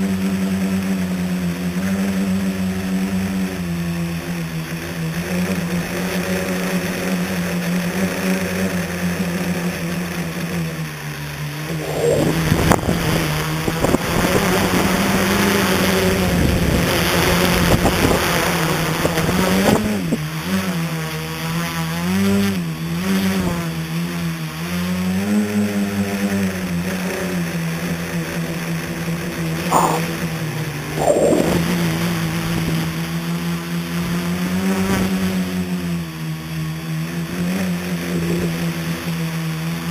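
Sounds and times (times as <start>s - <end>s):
drone motors and propellers humming: 11.2s - 15.1s, 29.7s - 30.1s, 31.0s - 32.9s
wind rushing over microphone: 11.7s - 14.8s, 31.0s - 31.8s.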